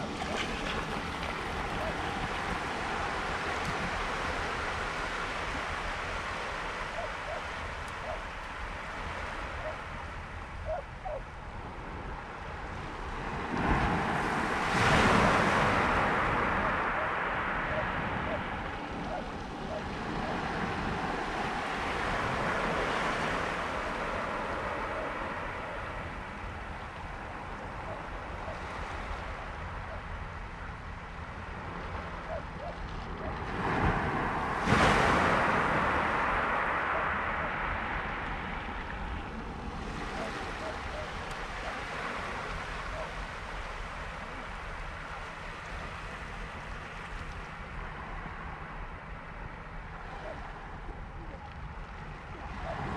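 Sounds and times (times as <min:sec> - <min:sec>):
waves washing on pebbles: 0:00.0 - 0:09.9, 0:12.8 - 0:29.4, 0:32.8 - 0:48.1
surf on shingle beach: 0:00.0 - 0:52.9
wind rumbling on microphone: 0:00.0 - 0:52.9.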